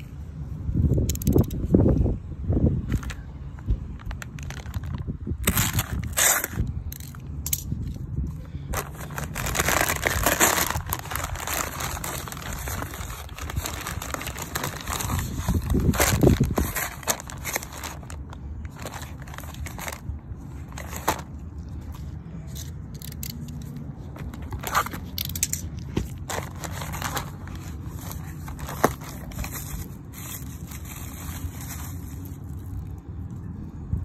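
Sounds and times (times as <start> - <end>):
packaging rustling and crinkling: 3.9 - 7.1, 8.7 - 22.1, 24.1 - 32.8.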